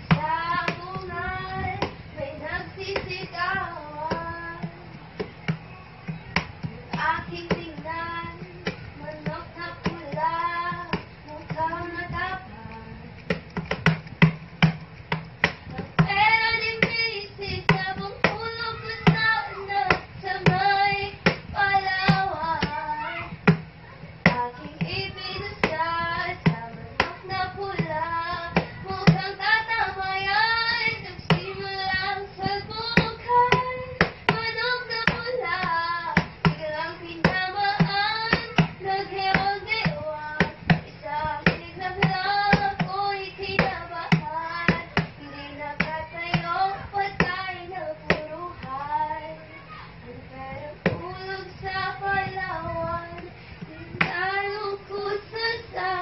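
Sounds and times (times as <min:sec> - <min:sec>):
hand claps: 0:02.9 - 0:12.4, 0:13.2 - 0:17.1, 0:17.7 - 0:48.8.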